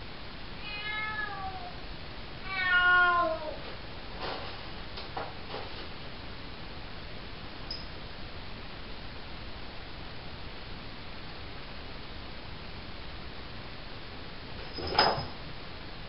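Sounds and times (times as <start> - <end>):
kitten meowing: 0.6 - 1.7, 2.5 - 3.6.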